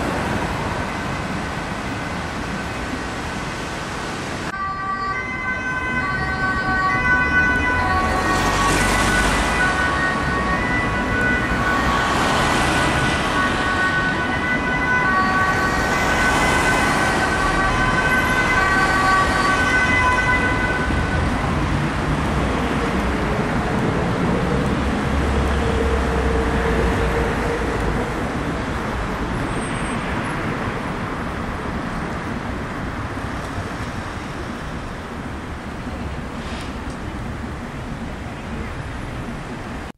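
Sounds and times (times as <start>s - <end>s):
city traffic noise: 0.0s - 39.9s
ambulance two-tone siren: 4.5s - 22.0s.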